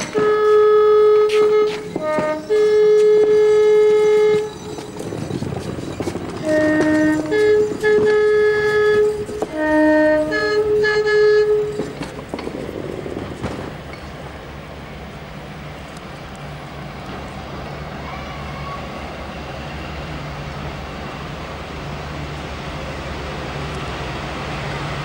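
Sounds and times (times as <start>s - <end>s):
two-tone air horn: 0.0s - 4.8s, 6.2s - 12.2s.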